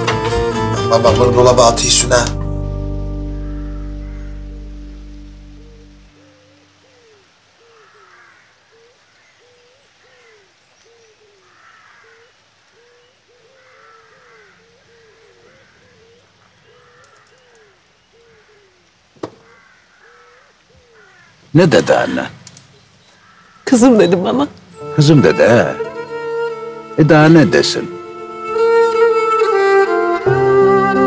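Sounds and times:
higher bird calls: 0:03.1 - 0:30.4
low rising and falling bird calls: 0:03.2 - 0:27.0
sharp knock: 0:19.2 - 0:19.5.

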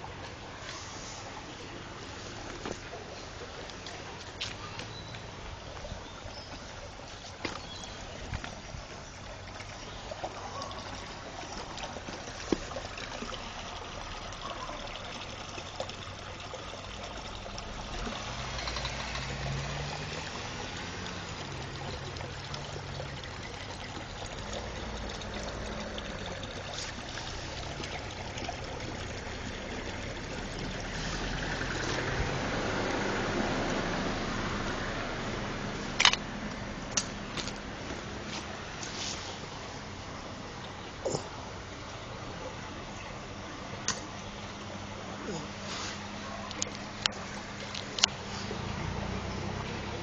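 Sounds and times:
water trickling in channel: 0:00.0 - 0:50.0.

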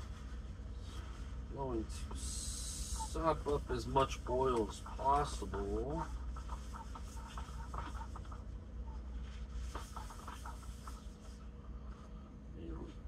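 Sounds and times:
steady low hum: 0:00.0 - 0:13.0
paper towel wiping a skillet: 0:04.6 - 0:08.4, 0:09.2 - 0:11.4.

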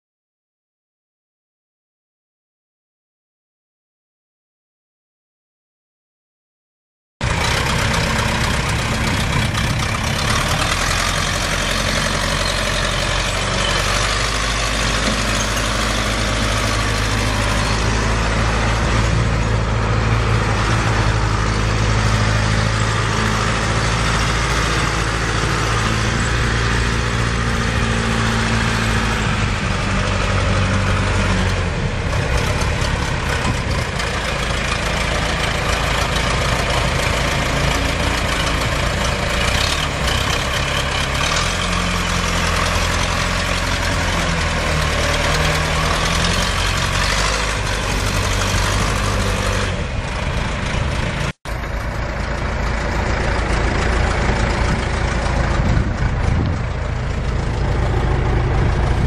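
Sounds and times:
diesel engine running: 0:07.2 - 0:59.0.

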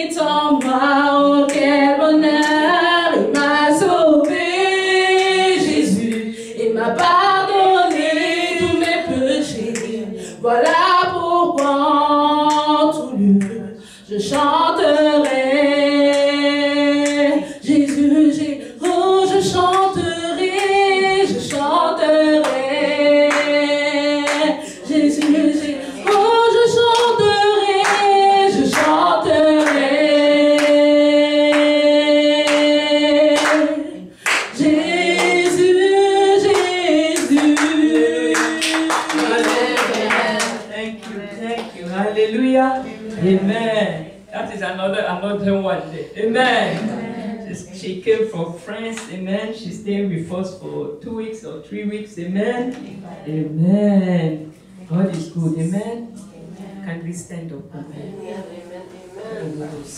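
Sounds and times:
woman singing unaccompanied: 0:00.0 - 0:43.7.

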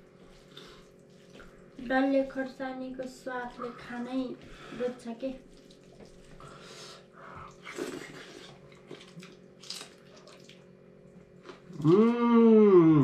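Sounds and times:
food being chewed: 0:05.4 - 0:06.5, 0:07.4 - 0:12.1.

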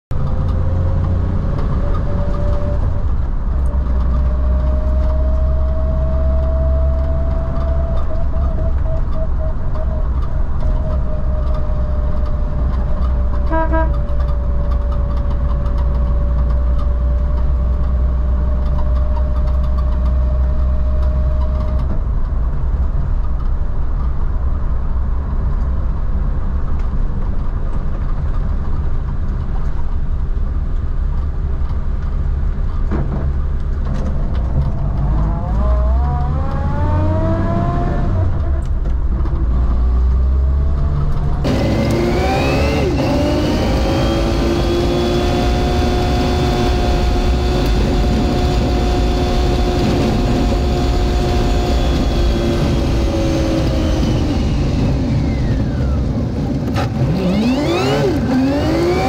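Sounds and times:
car engine drone: 0:00.1 - 0:59.0
brief higher tone: 0:13.5 - 0:14.0
whine rising and falling: 0:41.4 - 0:59.0.

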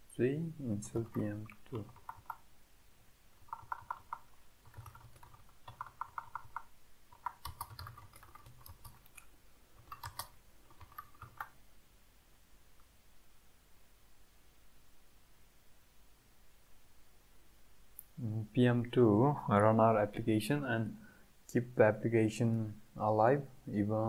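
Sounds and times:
keyboard typing: 0:00.8 - 0:02.4, 0:03.4 - 0:11.6.

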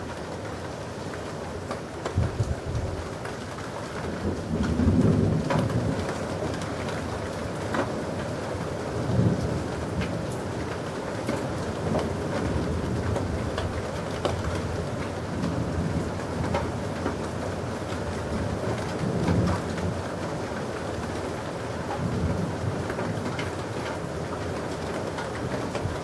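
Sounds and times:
steady rain: 0:00.0 - 0:26.0
thunder rumbling: 0:02.1 - 0:03.1, 0:04.1 - 0:07.8.

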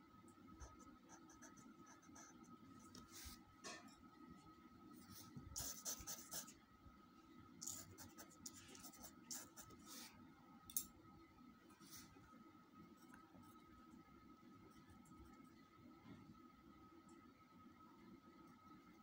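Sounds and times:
faint steady whine: 0:00.0 - 0:19.0
pencil scratching on paper: 0:00.6 - 0:03.4, 0:05.6 - 0:06.5, 0:07.6 - 0:10.1.

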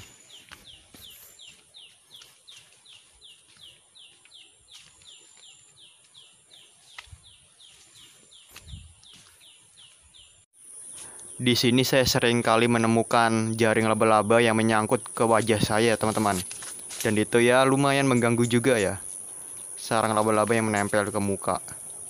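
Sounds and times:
falling chirp: 0:00.0 - 0:01.7
high insect buzz: 0:15.0 - 0:20.8.

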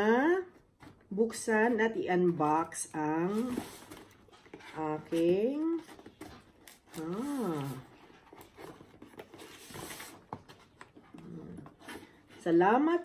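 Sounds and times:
paper and cardboard rustling tearing: 0:03.2 - 0:12.4.

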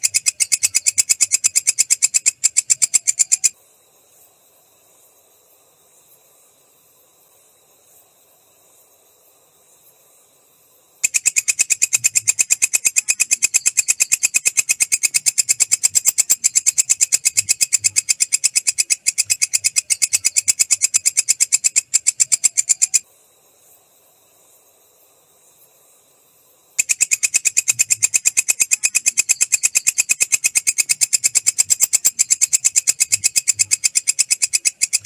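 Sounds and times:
katydid chirping pulses: 0:00.0 - 0:03.5, 0:11.0 - 0:23.0, 0:26.8 - 0:35.0.

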